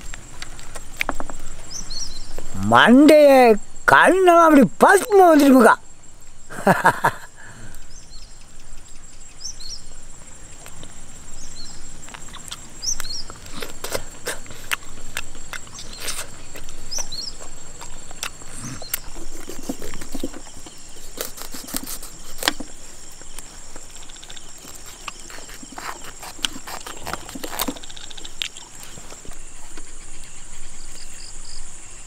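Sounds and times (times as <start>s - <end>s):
high insect drone: 0.0s - 32.0s.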